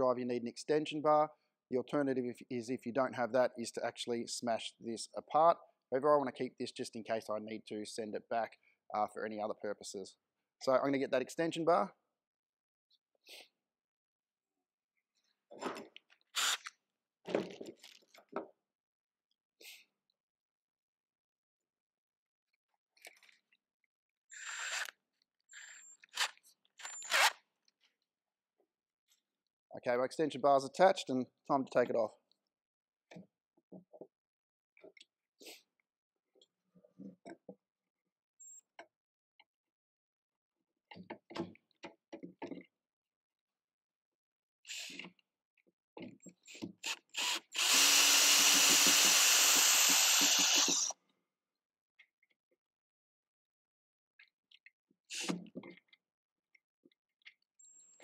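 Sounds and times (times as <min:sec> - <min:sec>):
drill chuck grinding: 0:16.4 - 0:16.7, 0:25.6 - 0:27.4, 0:44.7 - 0:45.0, 0:46.8 - 0:50.9.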